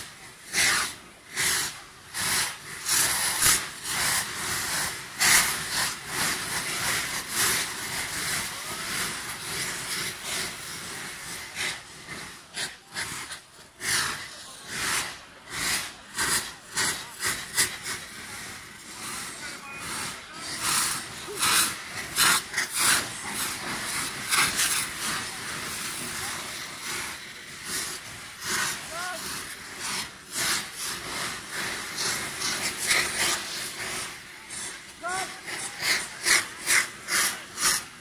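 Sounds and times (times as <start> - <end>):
fireworks hissing: 0.0 - 38.0.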